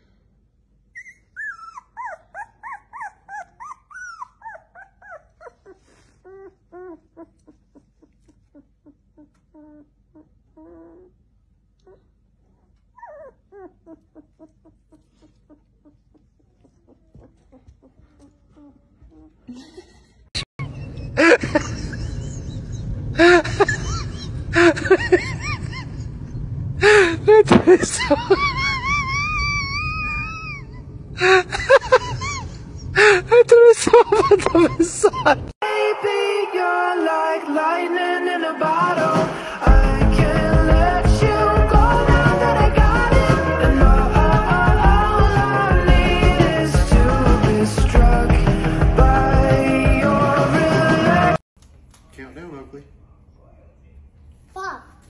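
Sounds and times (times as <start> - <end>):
small dog yelping and whining: 0.9 - 11.2, 11.8 - 19.3, 28.5 - 30.9
puppy whimpering: 0.9 - 19.5, 28.5 - 31.0.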